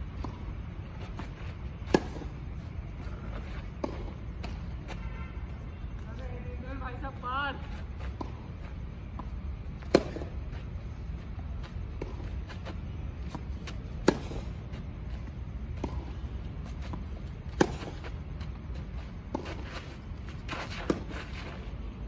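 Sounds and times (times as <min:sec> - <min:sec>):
tennis ball bounces: 0:01.7 - 0:02.4, 0:09.1 - 0:10.4, 0:11.6 - 0:14.9, 0:15.6 - 0:18.5, 0:20.5 - 0:21.3
tennis ball hits: 0:01.8 - 0:02.3, 0:09.8 - 0:10.3, 0:14.0 - 0:14.6.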